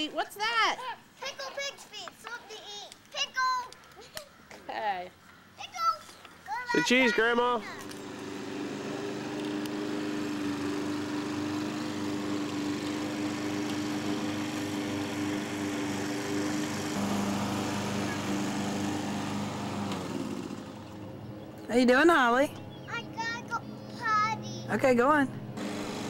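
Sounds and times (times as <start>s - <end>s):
toy ride-on car motor whine: 6.8s - 21.0s, 25.6s - 26.0s.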